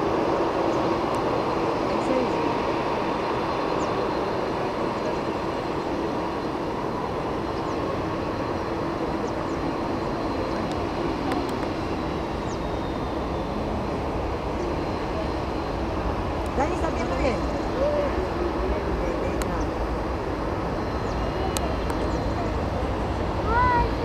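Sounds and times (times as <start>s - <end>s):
distant jet engines: 0.0s - 24.0s
faint high whine: 0.0s - 24.0s.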